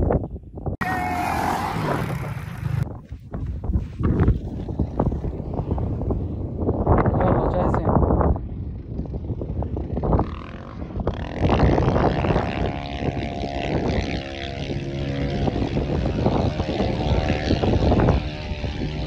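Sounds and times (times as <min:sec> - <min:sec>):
quad bike engine revving: 0:00.8 - 0:02.8, 0:09.1 - 0:19.0.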